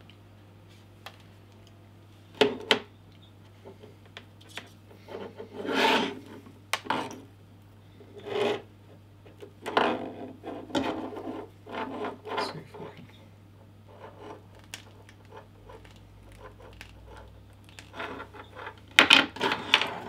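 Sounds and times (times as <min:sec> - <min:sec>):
cable rubbing and scraping: 0:05.0 - 0:06.3, 0:09.6 - 0:13.0, 0:13.9 - 0:20.0.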